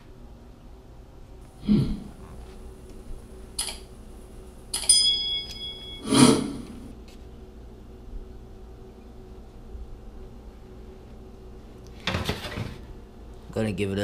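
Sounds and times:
thump and scrape: 12.0 - 12.8.

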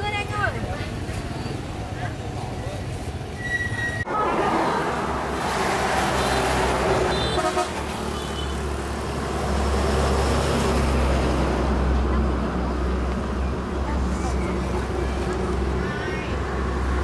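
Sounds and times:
car horn toots: 7.1 - 8.6.

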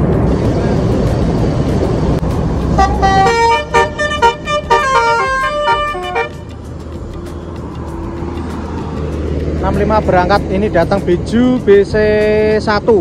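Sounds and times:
bus engine rumble: 0.0 - 13.0
musical bus horn playing a tune: 2.7 - 6.7.

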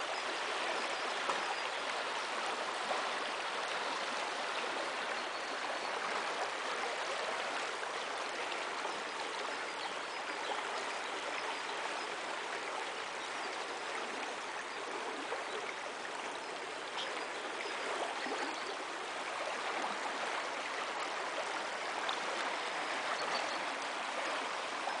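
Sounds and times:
river water rushing over stones: 15.9 - 25.0.

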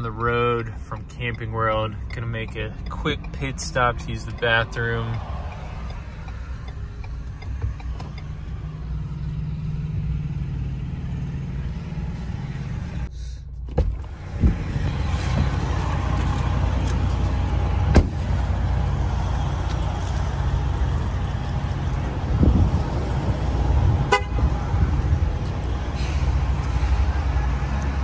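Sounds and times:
truck engine and road rumble: 0.0 - 28.0
car door shutting: 13.6 - 15.6, 17.8 - 18.4.

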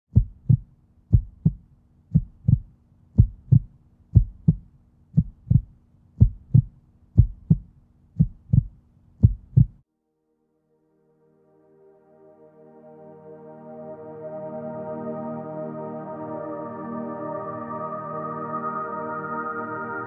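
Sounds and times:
heartbeat thumps: 0.1 - 9.8.

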